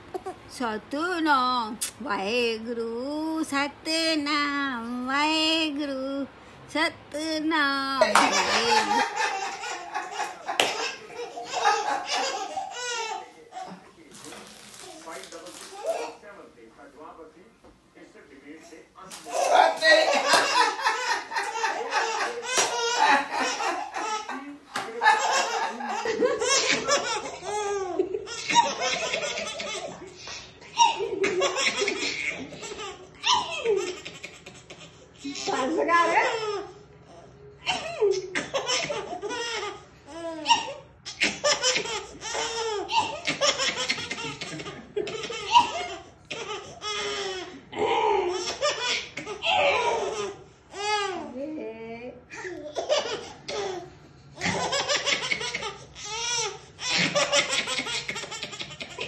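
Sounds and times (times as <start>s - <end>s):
baby giggling: 0.0s - 0.5s, 8.0s - 13.8s, 19.2s - 36.7s, 37.7s - 51.3s, 52.4s - 59.0s
woman laughing: 7.9s - 10.6s, 19.3s - 27.2s
hands clapping: 8.2s - 8.4s, 10.5s - 10.8s, 20.3s - 20.6s, 22.5s - 22.8s, 24.8s - 25.0s.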